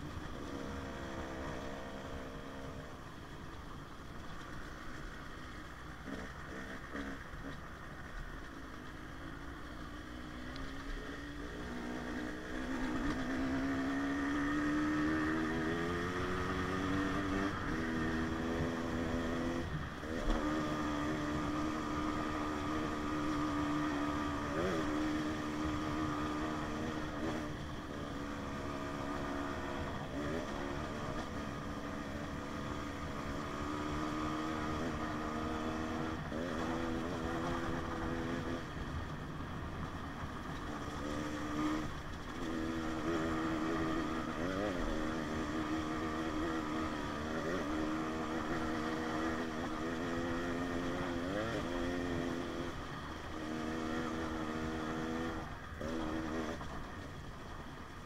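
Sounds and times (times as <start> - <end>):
dirt bike engine revving: 11.1 - 38.7, 40.7 - 56.6.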